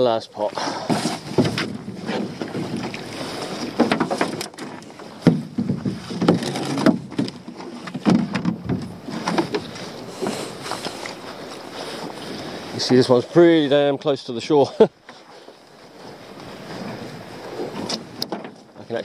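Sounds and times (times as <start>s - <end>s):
wet rope hauled over gunwale: 0.6s - 11.3s.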